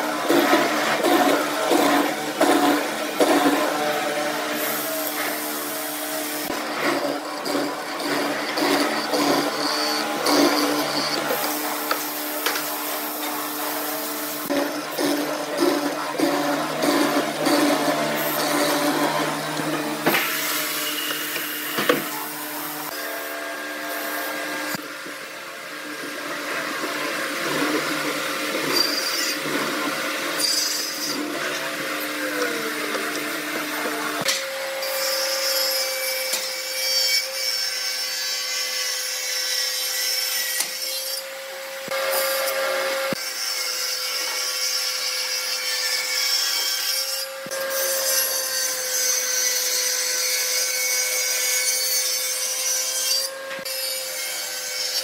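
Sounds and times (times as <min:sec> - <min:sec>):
mortiser motor hum: 0:00.0 - 0:30.4
table saw cutting a board: 0:00.0 - 0:55.0.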